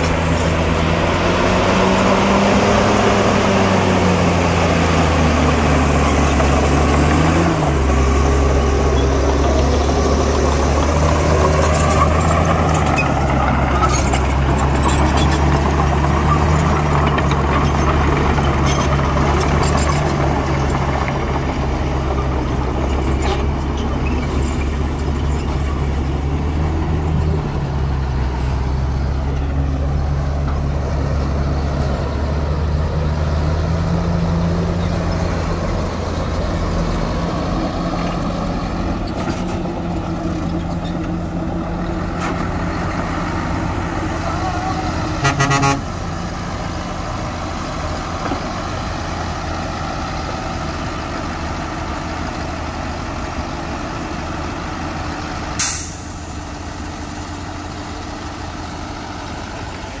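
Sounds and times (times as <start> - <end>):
heavy diesel engines droning: 0.0 - 60.0
air brake hiss: 55.6 - 56.2.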